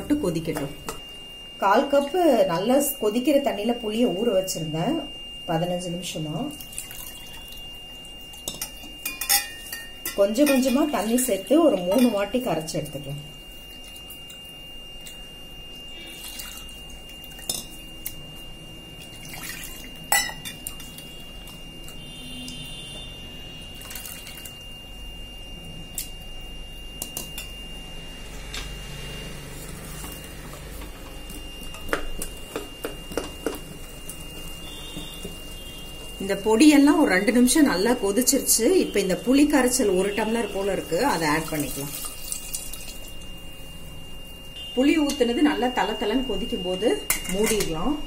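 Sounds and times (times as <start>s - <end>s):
wet squishing and sloshing: 6.6s - 9.0s, 13.4s - 22.7s, 23.7s - 24.7s, 39.7s - 43.3s.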